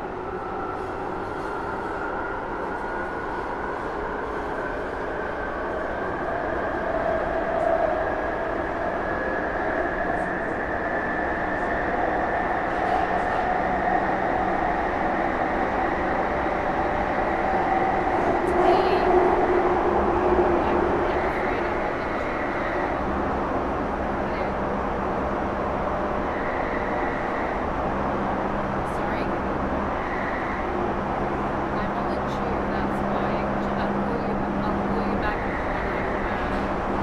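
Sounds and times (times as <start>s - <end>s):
rail running noise: 0.0s - 37.0s.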